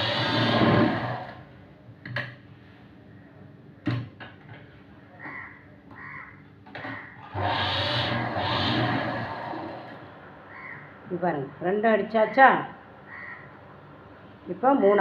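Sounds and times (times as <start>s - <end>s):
sewing machine stitching: 0.0s - 1.4s, 7.2s - 10.1s
sharp clicks and knocks: 2.0s - 2.4s.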